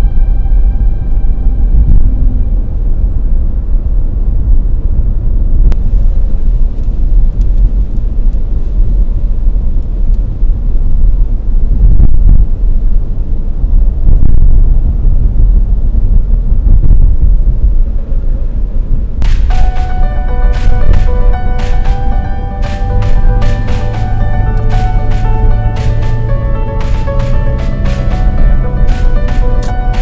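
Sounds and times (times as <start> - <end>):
loud low rumble: 0.0 - 30.0
sharp click: 19.2 - 19.9.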